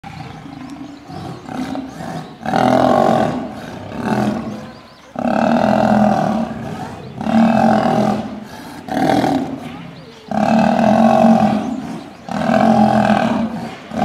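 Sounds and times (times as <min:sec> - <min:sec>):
lions snarling: 0:00.1 - 0:14.0.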